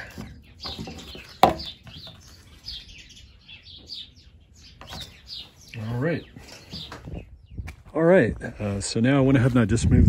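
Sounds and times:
small birds chirping: 0:00.0 - 0:09.6.

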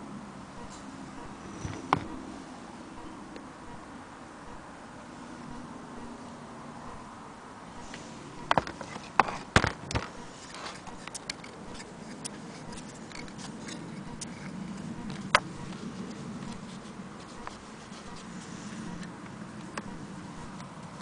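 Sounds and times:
light irregular ticking: 0:10.0 - 0:21.0.

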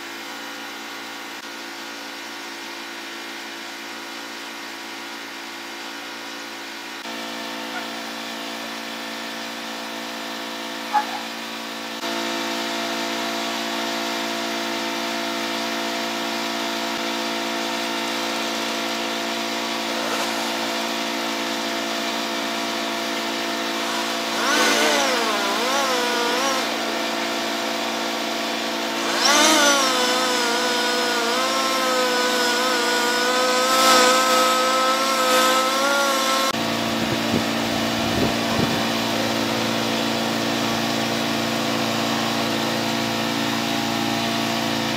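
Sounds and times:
chainsaw running: 0:07.0 - 0:44.9
chainsaw cutting tree trunk: 0:16.5 - 0:44.9.

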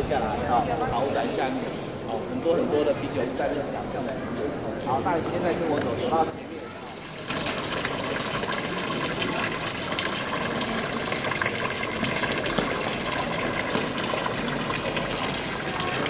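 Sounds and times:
fountain water splashing into basin: 0:06.5 - 0:16.0.

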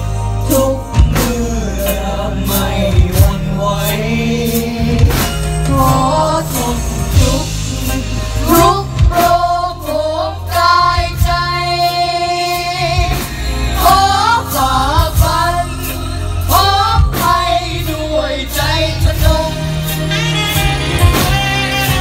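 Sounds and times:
choir singing with band: 0:00.0 - 0:22.0
drum strikes: 0:00.5 - 0:12.0, 0:12.9 - 0:22.0.

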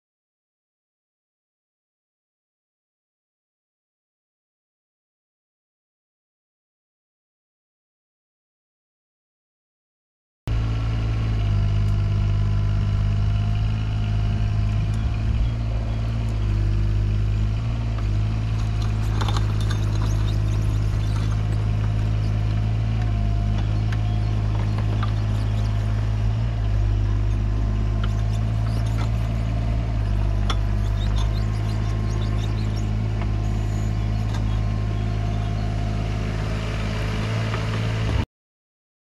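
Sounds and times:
diesel engine running: 0:10.5 - 0:38.2.

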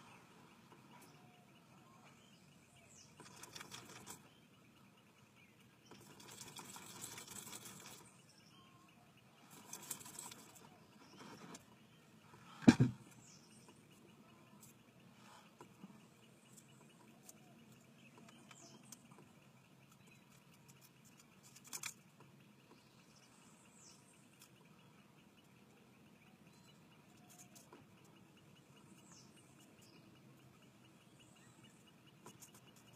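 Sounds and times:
camera handling knocks: 0:12.6 - 0:13.0.

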